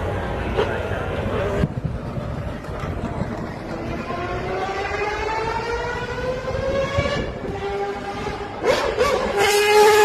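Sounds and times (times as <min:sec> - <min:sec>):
crowd noise: 0:00.0 - 0:10.0
racing car engine accelerating: 0:03.1 - 0:10.0.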